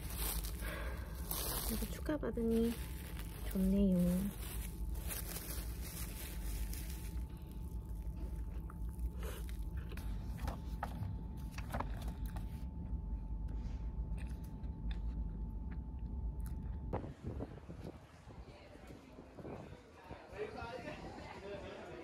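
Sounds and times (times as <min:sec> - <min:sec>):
small crunches and clicks: 0:00.0 - 0:12.6
person chewing a wrap: 0:00.0 - 0:17.0.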